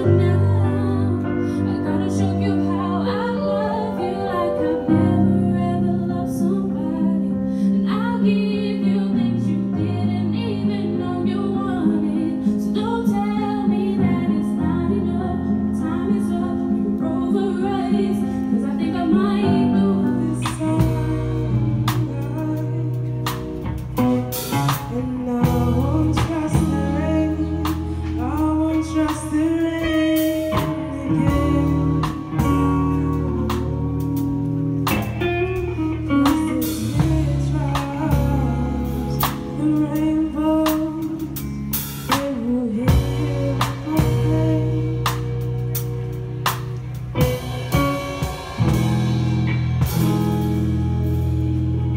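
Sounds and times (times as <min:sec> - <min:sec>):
woman singing: 0:00.0 - 0:47.5
bass: 0:00.0 - 0:51.9
electric guitar: 0:00.0 - 0:51.9
keyboard: 0:00.0 - 0:51.9
drum kit beat: 0:20.4 - 0:51.9.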